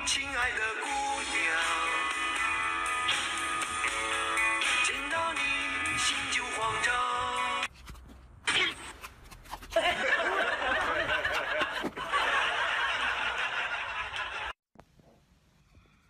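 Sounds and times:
people laughing: 9.7s - 14.6s.

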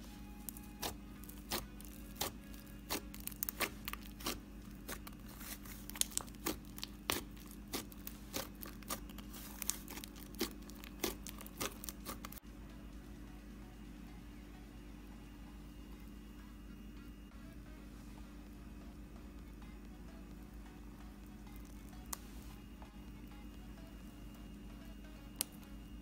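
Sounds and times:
slime clicking and crackling: 0.4s - 12.4s, 25.4s - 25.7s.

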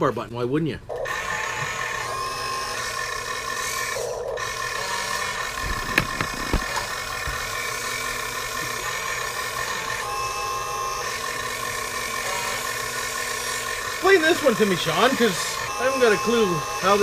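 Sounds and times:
steady hum with whining tones: 0.8s - 17.0s
camera handling knocks: 5.6s - 7.4s.

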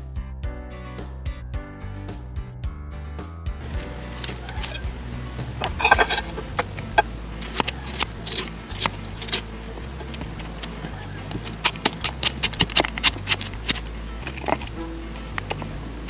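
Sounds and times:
knife chopping on plastic board: 10.6s - 13.9s.

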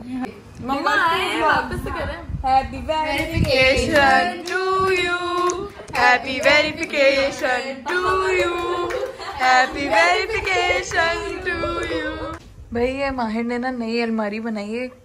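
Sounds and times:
women singing together: 2.6s - 12.4s
hand-clapping: 3.3s - 9.3s.

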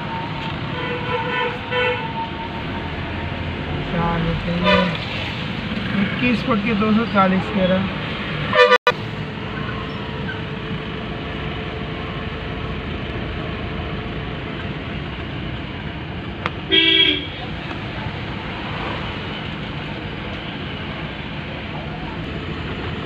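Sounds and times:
road traffic noise: 0.0s - 23.0s
vehicle horn toots: 4.6s - 5.0s, 8.5s - 9.0s, 16.7s - 17.5s.

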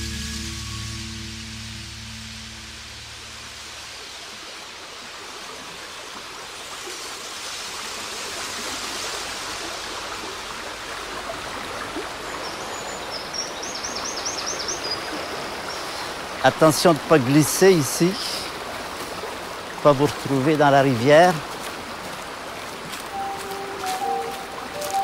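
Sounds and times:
river water rushing: 1.7s - 25.0s
bird singing high notes: 23.1s - 25.0s.

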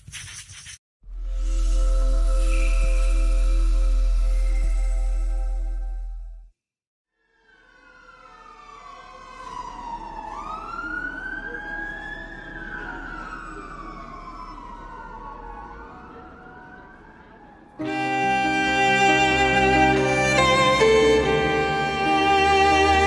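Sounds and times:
siren wailing: 7.2s - 17.1s.

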